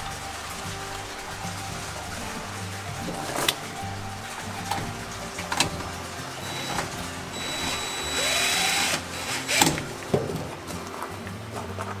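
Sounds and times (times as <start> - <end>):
background music: 0.0 - 12.0
cordless drill whine: 6.4 - 9.9.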